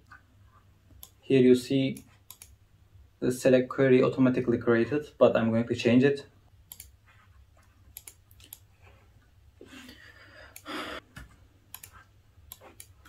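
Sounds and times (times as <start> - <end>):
mouse clicks: 1.9 - 2.6, 7.9 - 8.7, 11.7 - 13.0
laptop keystrokes: 11.7 - 13.0.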